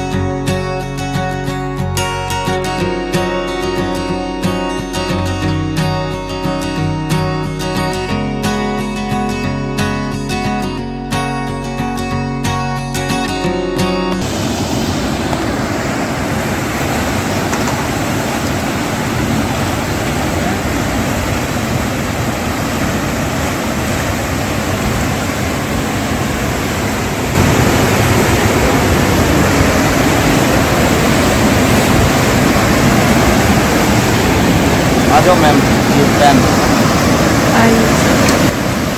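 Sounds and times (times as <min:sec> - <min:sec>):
river rapids roaring over rocks: 0:14.2 - 0:38.9.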